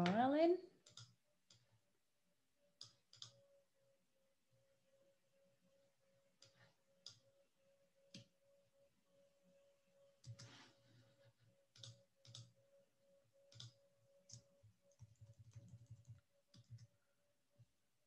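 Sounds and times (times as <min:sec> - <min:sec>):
computer keyboard keystrokes: 0:00.8 - 0:01.6, 0:02.8 - 0:03.4, 0:10.2 - 0:10.5, 0:11.8 - 0:12.5, 0:13.5 - 0:16.9.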